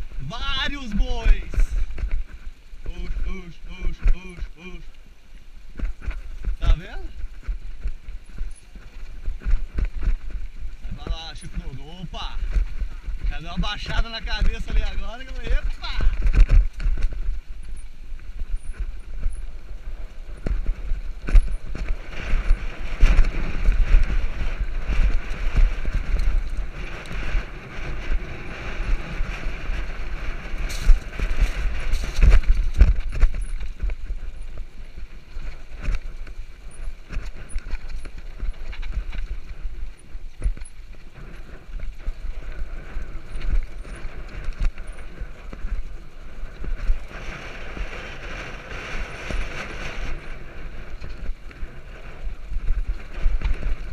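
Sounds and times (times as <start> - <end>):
bike rolling low rumble: 0.0 - 53.9
bike knocks and rattles: 20.3 - 28.6, 29.5 - 51.6.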